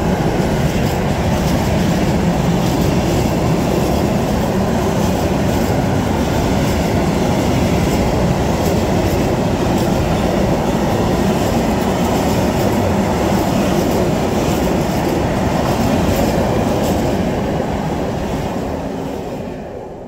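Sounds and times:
freight train wheels rumbling: 0.0 - 20.0.

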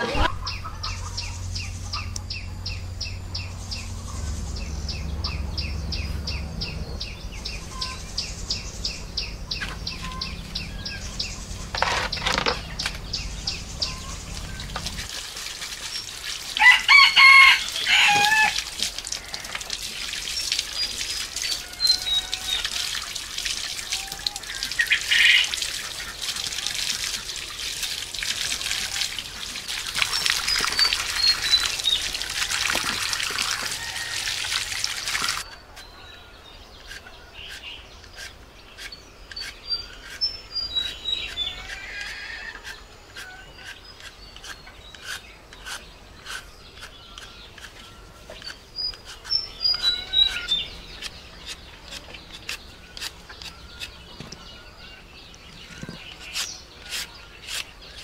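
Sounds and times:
bird chirping: 0.0 - 15.1, 35.3 - 58.0
tap water pouring on concrete: 14.4 - 35.5
peeler scraping potato skin: 36.8 - 54.0, 55.6 - 58.0.

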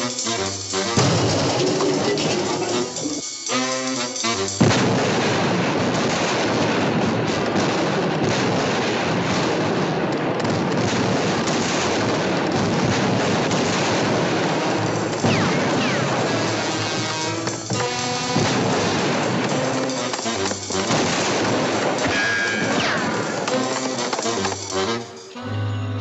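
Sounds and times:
cartoon gunfire and brawling: 0.0 - 25.2
falling whistles: 15.3 - 16.1, 22.1 - 23.6.

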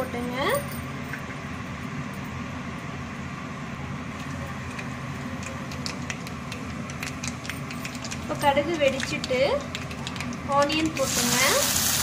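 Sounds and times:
steady low hum: 0.0 - 11.4
mustard seeds sizzling and popping: 8.8 - 12.0.

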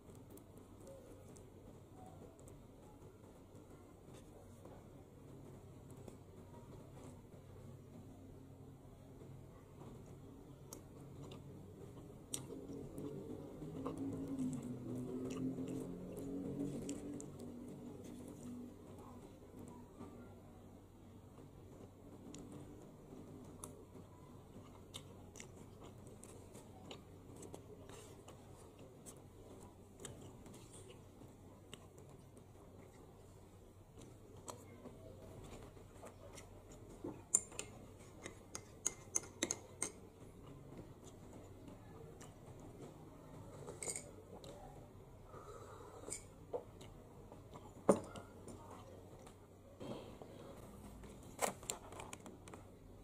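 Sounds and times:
low steady hum: 0.0 - 53.0
spoon clicking and scraping: 36.7 - 40.1, 43.6 - 44.2.

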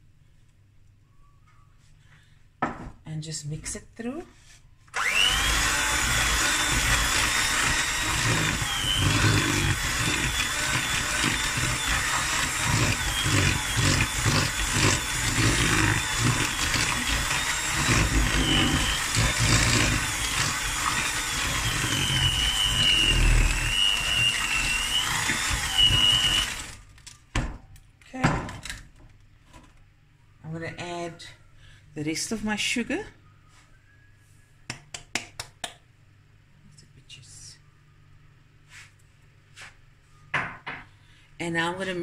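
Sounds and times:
beaters churning batter: 5.0 - 26.8
electric mixer whining: 5.0 - 26.8.

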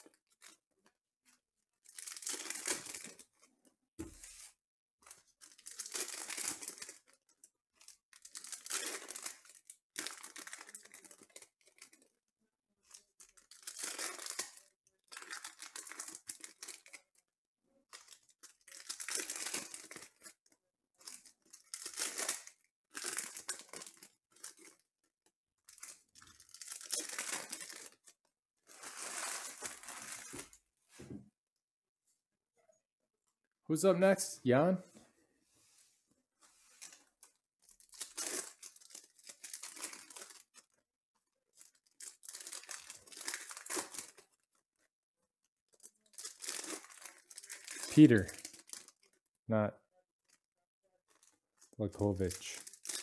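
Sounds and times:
foil wrappers tearing and crinkling: 8.1 - 12.0, 13.3 - 17.0, 18.0 - 20.3, 21.1 - 24.8, 25.7 - 28.1, 37.6 - 40.7, 41.6 - 44.3, 45.8 - 49.1, 52.2 - 53.0.

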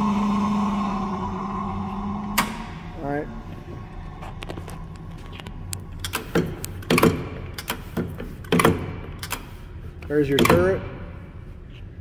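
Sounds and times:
coolant pump humming: 0.0 - 7.6.

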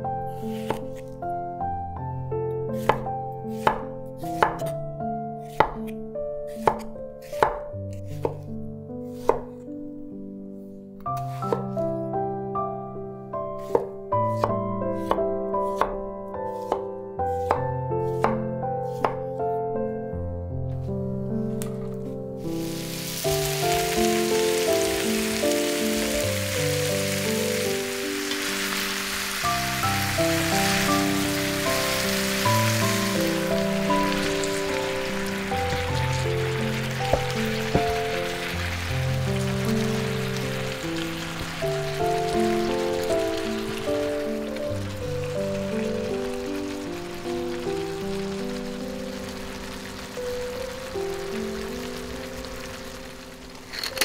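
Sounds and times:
background music: 0.0 - 54.0
vegetables sizzling in hot oil: 22.4 - 54.0.

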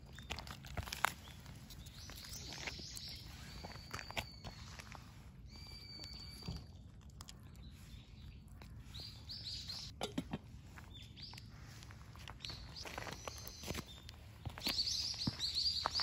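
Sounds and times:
cats chewing food: 0.0 - 9.9
birds chirping: 0.0 - 10.0, 10.6 - 16.0.

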